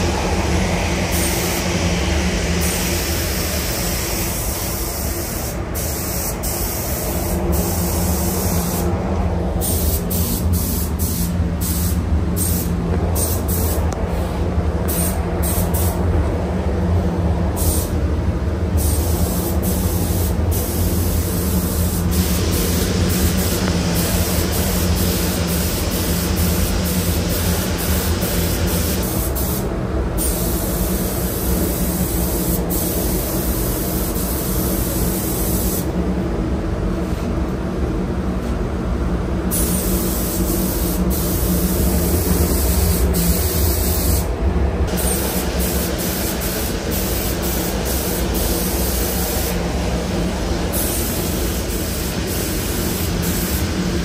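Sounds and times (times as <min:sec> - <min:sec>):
steady low hum: 0:00.0 - 0:54.0
paint spray gun hissing: 0:02.6 - 0:08.8, 0:09.6 - 0:13.8, 0:17.6 - 0:17.9, 0:18.8 - 0:29.6, 0:30.2 - 0:35.9, 0:39.5 - 0:44.3, 0:44.9 - 0:49.6, 0:50.4 - 0:54.0.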